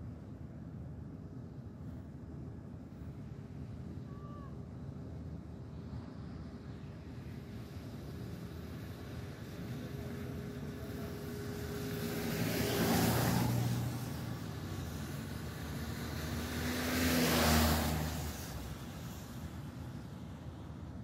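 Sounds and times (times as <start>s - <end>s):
background traffic hum: 0.0s - 21.0s
cars passing: 7.4s - 21.0s.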